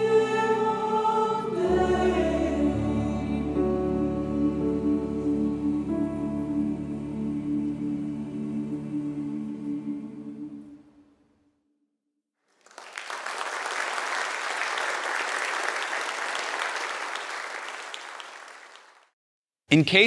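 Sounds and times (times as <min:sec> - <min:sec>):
choir with piano chord: 0:00.0 - 0:11.1
audience applauding: 0:12.5 - 0:19.1.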